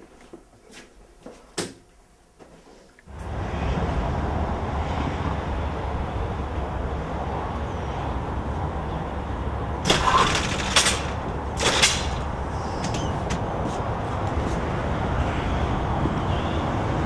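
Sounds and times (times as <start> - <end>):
metal and glass door clanking: 9.8 - 13.4.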